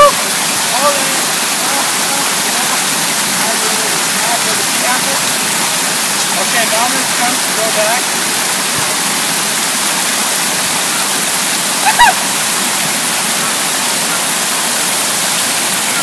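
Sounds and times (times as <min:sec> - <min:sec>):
water rushing over weir: 0:00.0 - 0:16.0.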